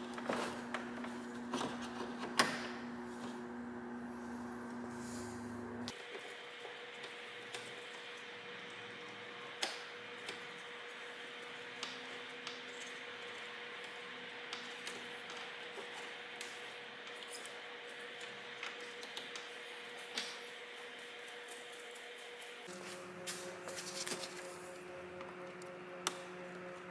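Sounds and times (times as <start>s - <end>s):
steady hum: 0.0s - 6.0s, 16.4s - 26.9s.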